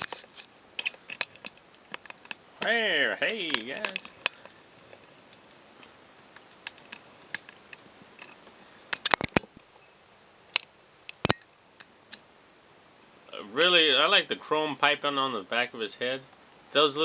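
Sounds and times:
clicks and knocks of hard plastic: 0.0 - 9.7
faint room hiss: 0.0 - 17.0.

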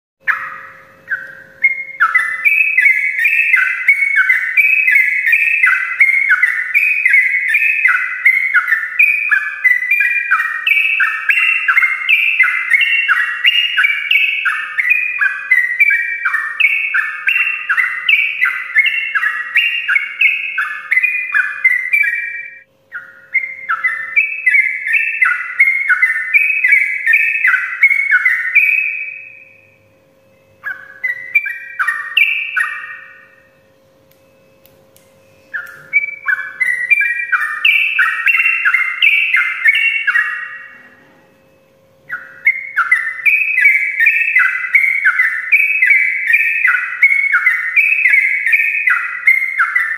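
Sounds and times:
bird singing warbling notes: 0.2 - 49.9
faint steady hum: 0.2 - 49.9.

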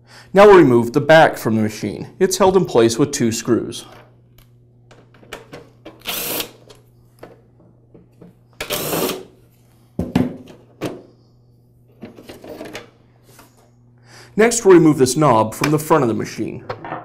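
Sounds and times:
cordless screwdriver whirring: 6.0 - 6.6, 8.6 - 9.3.

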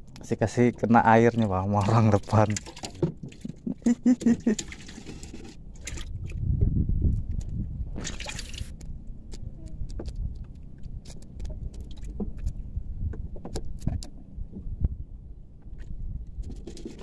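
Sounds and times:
low steady rumble: 0.0 - 17.0
water sloshing: 0.2 - 6.4, 8.0 - 8.8
short splash: 8.0 - 8.7
small knocks and clicks: 8.8 - 14.7.

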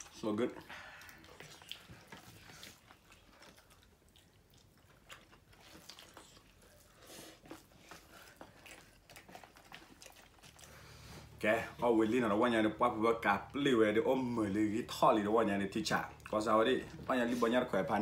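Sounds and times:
person chewing and crunching: 0.0 - 11.8, 15.9 - 18.0.

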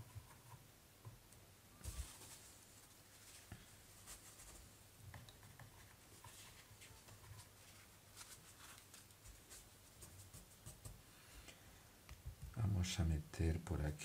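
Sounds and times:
brush stroking on paper: 1.8 - 4.8, 5.7 - 11.4.

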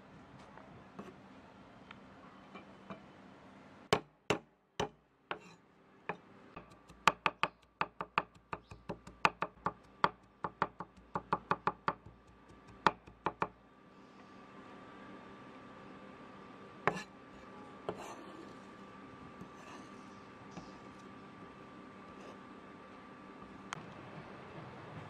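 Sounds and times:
cleaver chopping on wooden board: 3.9 - 5.4, 6.6 - 13.5.

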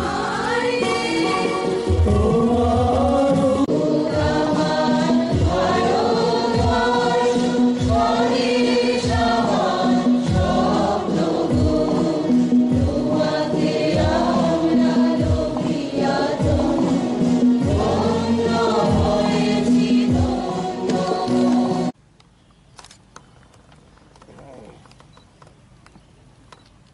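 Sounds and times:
women singing together: 0.0 - 22.0
low falling-pitch beat: 1.9 - 21.9.

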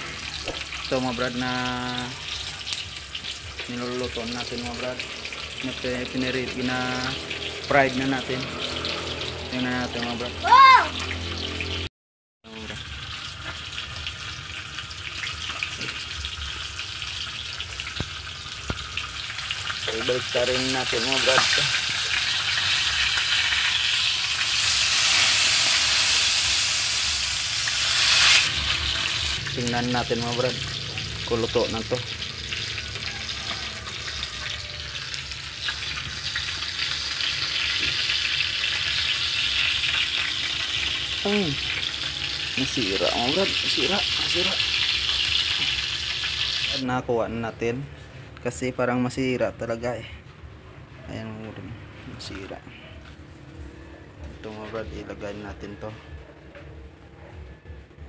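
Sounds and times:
fish sizzling in hot oil: 0.0 - 11.9, 12.5 - 47.0.

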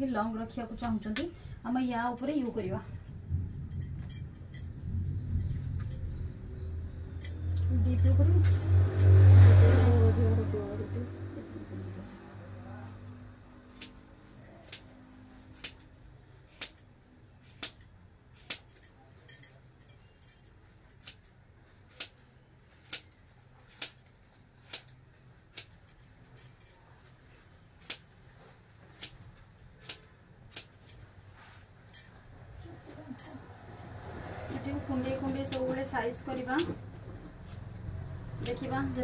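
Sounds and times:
scissors snipping hair: 0.0 - 2.5, 12.8 - 19.4, 21.0 - 26.7, 27.8 - 28.2, 28.9 - 31.0, 34.5 - 39.0.

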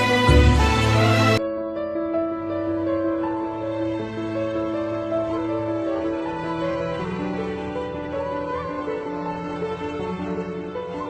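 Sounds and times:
loud full music arrangement: 0.0 - 1.4.

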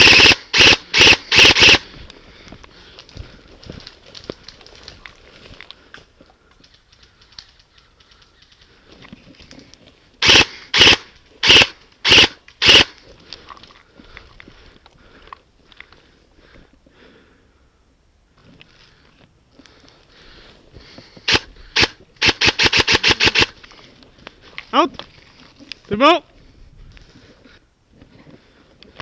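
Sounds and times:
airsoft rifle shots: 0.0 - 1.8, 10.2 - 13.0, 21.3 - 23.6.

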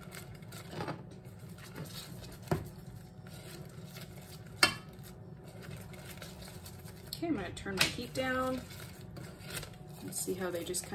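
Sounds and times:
whisk stirring eggs in saucepan: 1.3 - 7.2, 7.8 - 10.9.

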